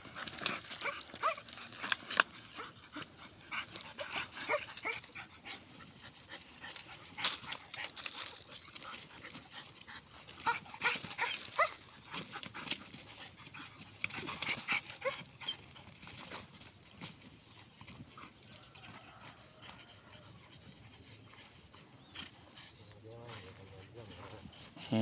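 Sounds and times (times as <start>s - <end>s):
puppies whimpering and yipping: 2.5s - 25.0s.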